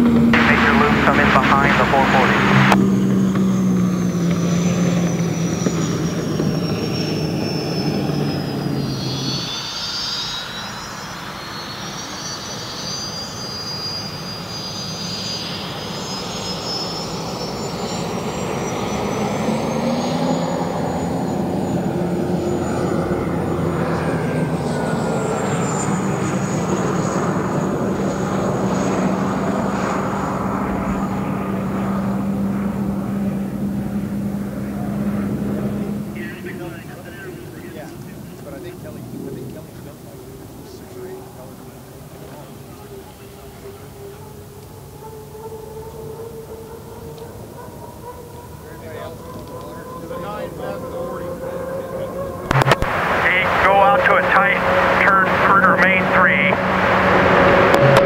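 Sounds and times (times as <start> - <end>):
low hum: 0.0 - 58.0
turbine engine whine: 0.0 - 58.0.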